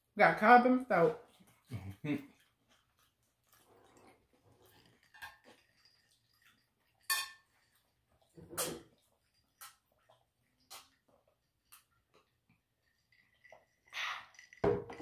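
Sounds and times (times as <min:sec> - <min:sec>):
mouth and eating sounds: 0:01.2 - 0:06.6
drinking gulp: 0:01.5 - 0:02.6, 0:08.1 - 0:15.0
glass clink: 0:07.0 - 0:07.8.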